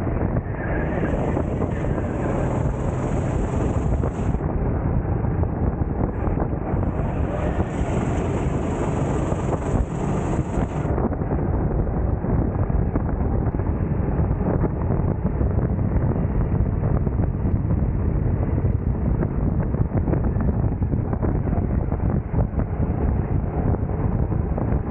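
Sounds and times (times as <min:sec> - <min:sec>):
wind buffeting microphone: 0:00.0 - 0:24.9
kart engine running: 0:00.8 - 0:04.4, 0:06.2 - 0:11.0.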